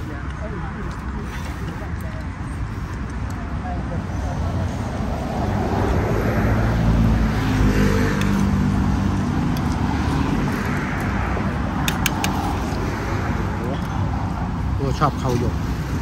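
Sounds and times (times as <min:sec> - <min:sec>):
road traffic passing: 0:00.0 - 0:16.0
sharp clicks: 0:11.8 - 0:12.5.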